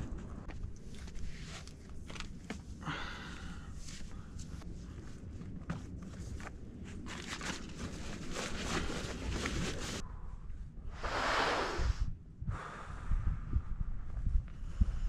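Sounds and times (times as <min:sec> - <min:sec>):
wind buffeting microphone: 0:11.6 - 0:15.0.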